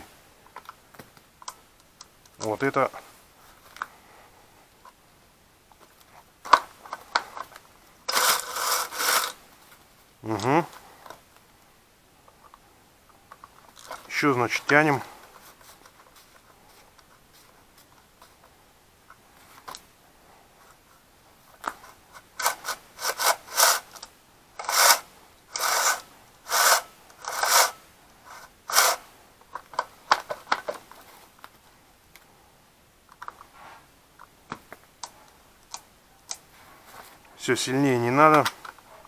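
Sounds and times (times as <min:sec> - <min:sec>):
chainsaw chain rasping along bar: 0:08.1 - 0:09.4, 0:22.4 - 0:24.0, 0:24.6 - 0:29.0.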